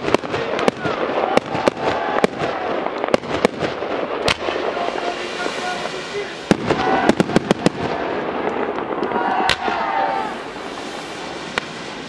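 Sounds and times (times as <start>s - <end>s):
fireworks bangs: 0.0s - 12.0s
fireworks crackling hiss: 0.0s - 12.0s.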